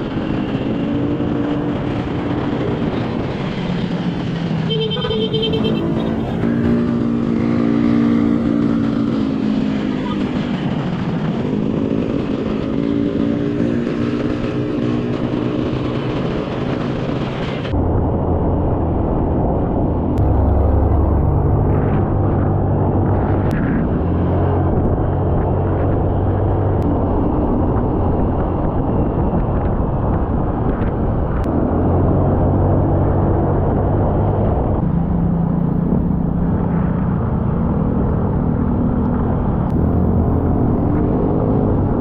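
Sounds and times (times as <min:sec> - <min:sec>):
wind rushing over microphone: 0:00.0 - 0:42.0
motorcycle engine revving: 0:00.6 - 0:16.8, 0:20.2 - 0:26.9.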